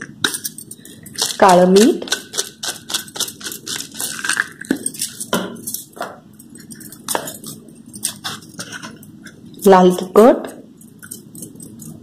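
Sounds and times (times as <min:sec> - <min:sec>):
seasoning crackling on wafers: 0:00.8 - 0:09.7.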